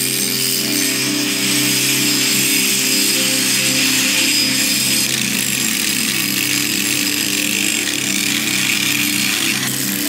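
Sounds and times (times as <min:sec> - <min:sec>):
angle grinder grinding metal: 0:00.0 - 0:10.0.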